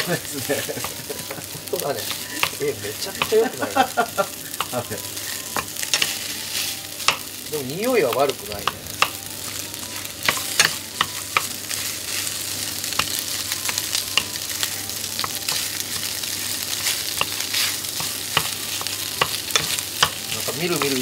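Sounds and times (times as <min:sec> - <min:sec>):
rice and fish sizzling in oil: 0:00.0 - 0:21.0
spatula scraping and knocking pan: 0:12.9 - 0:21.0.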